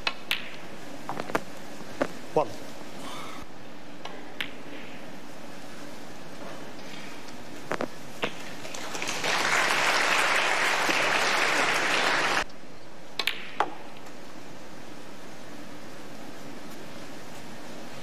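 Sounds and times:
audience applause: 8.6 - 12.5.

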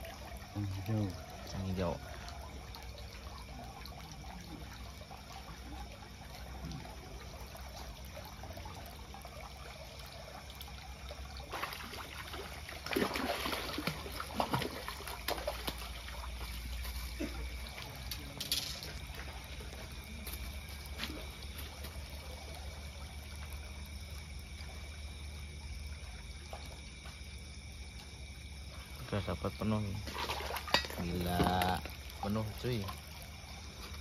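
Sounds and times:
fish splashing in water: 0.0 - 28.6, 29.8 - 34.0
sharp water slaps: 11.4 - 16.5, 30.1 - 31.8.

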